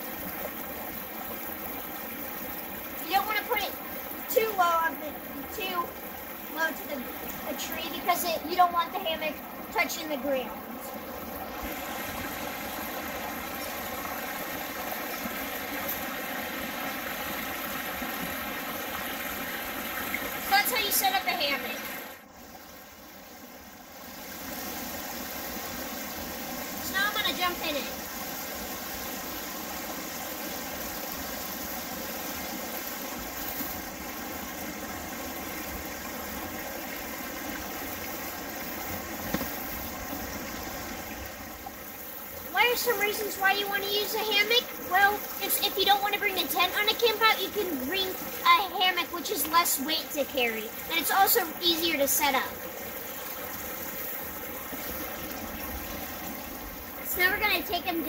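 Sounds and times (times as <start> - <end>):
stream flowing over stones: 0.0 - 58.0.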